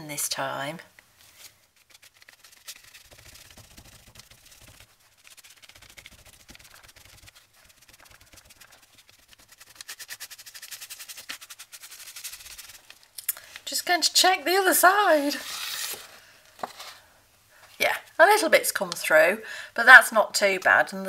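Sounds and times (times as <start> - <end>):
sponge scrubbing on paper: 1.3 - 13.0.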